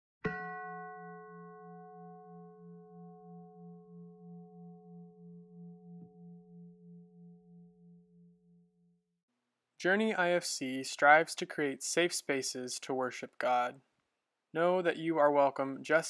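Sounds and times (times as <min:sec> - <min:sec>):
bell ringing with pulsing hum: 0:00.3 - 0:09.0.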